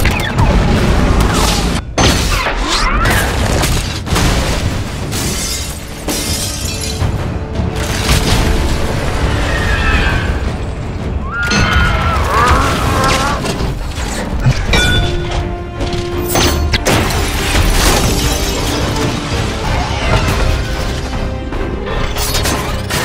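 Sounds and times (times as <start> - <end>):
film music score: 0.0 - 23.0
glass shattering: 5.1 - 7.1.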